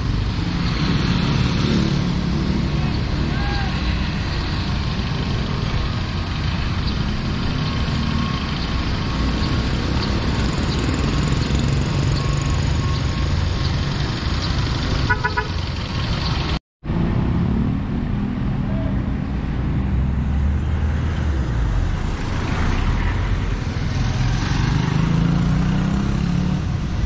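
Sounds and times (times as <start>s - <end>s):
traffic engine rumble: 0.0s - 27.0s
vehicle horn toots: 15.1s - 15.6s.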